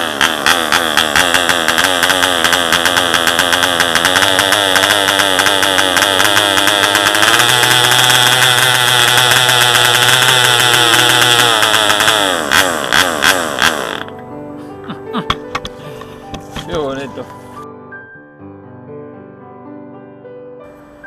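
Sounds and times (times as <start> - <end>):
model diesel engine running: 0.0 - 14.2, 15.2 - 17.6.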